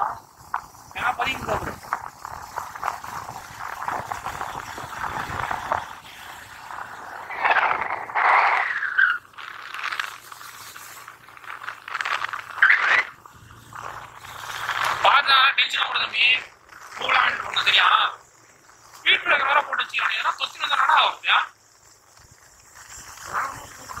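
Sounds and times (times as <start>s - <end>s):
wind noise on microphone: 0.0s - 8.6s
motorcycle road noise: 0.0s - 19.0s.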